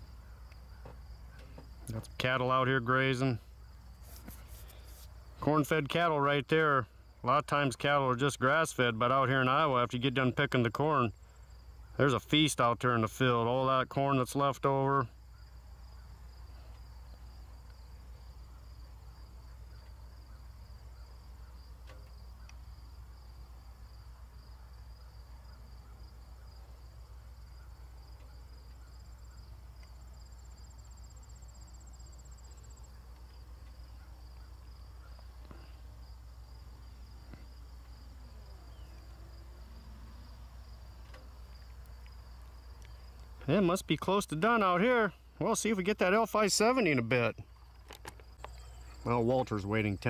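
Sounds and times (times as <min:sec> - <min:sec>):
high insect trill: 0:00.0 - 0:50.0
insects chirping: 0:00.0 - 0:50.0.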